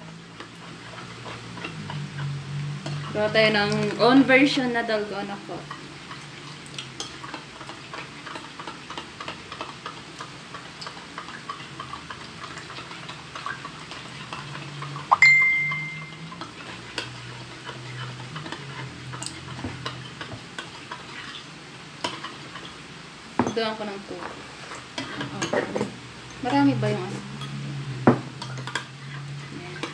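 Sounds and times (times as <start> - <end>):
glass ringing: 15.1 - 16.2
spoon clinking in a glass: 15.1 - 16.3.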